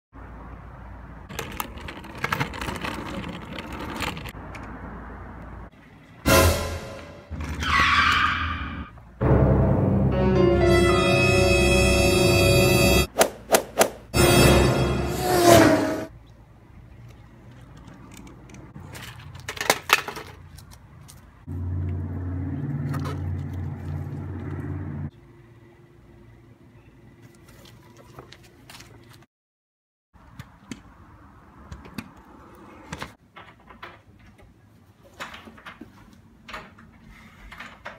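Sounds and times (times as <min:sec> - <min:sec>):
scooter rolling on asphalt: 0:01.2 - 0:05.6, 0:17.0 - 0:25.1
scooter wheels rattling: 0:01.3 - 0:04.8, 0:17.4 - 0:21.3
low engine hum: 0:21.5 - 0:26.9.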